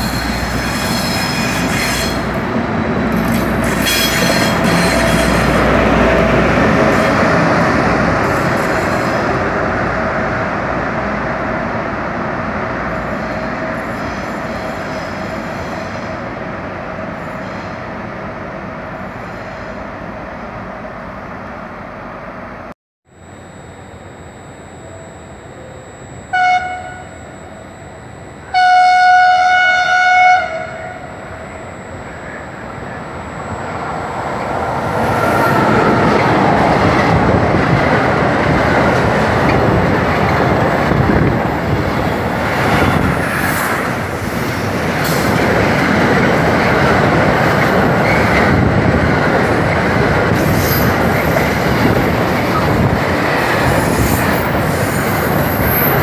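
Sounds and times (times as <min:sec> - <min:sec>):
train wheels rumbling and clacking: 0:00.0 - 0:10.0, 0:33.7 - 0:56.0
locomotive horn: 0:26.3 - 0:27.1, 0:28.5 - 0:31.1.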